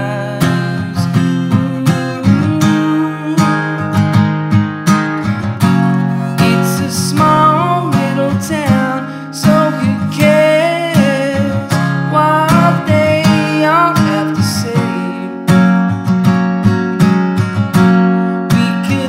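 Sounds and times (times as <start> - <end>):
person singing: 0.0 - 4.0, 5.9 - 15.9, 18.1 - 19.0
strummed acoustic guitar: 0.0 - 19.0.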